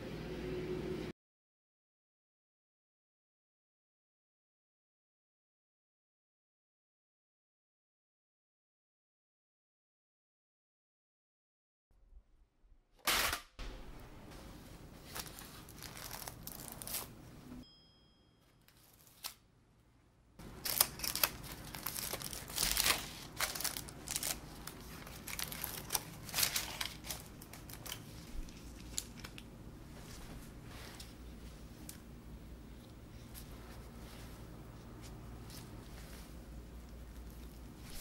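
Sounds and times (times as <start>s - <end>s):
paper liners crinkling: 14.9s - 17.3s, 18.6s - 19.4s, 20.4s - 29.5s, 33.2s - 38.0s.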